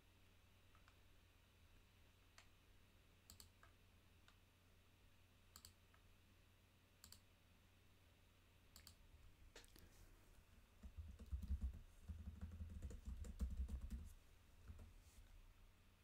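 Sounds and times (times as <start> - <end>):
computer mouse clicks: 0.7 - 1.0, 3.3 - 4.4, 5.5 - 6.0, 7.0 - 7.3, 8.7 - 9.0.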